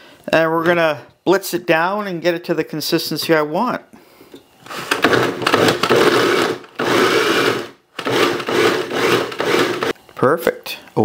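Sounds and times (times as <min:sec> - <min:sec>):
food processor motor chopping: 0:04.7 - 0:10.0.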